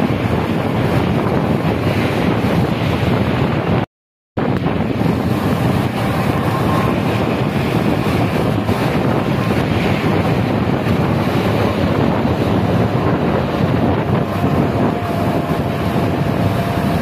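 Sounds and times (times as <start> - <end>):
bus driving on wet road: 0.0 - 17.0
wind buffeting microphone: 0.0 - 17.0.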